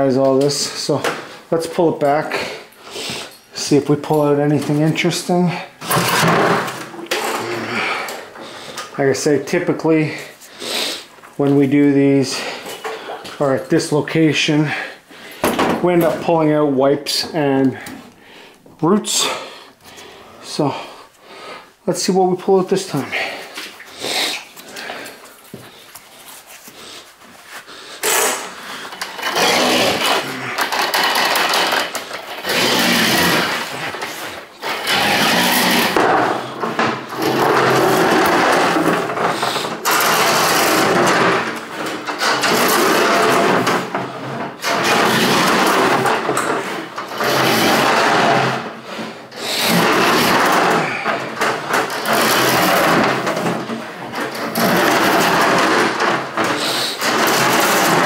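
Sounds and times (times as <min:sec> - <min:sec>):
drain cleaning machine running: 0:29.0 - 0:48.7, 0:49.4 - 0:58.0.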